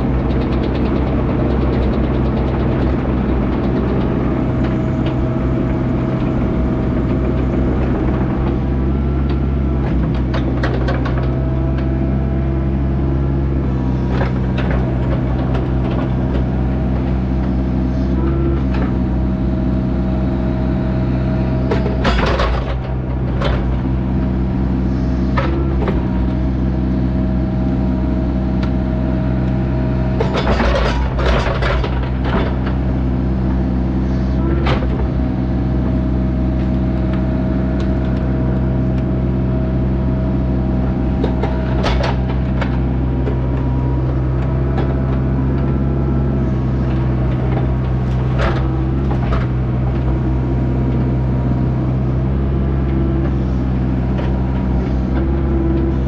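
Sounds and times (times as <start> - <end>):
diesel engine running: 0.0 - 56.0
knocks and clatters: 21.7 - 23.9, 30.2 - 32.8.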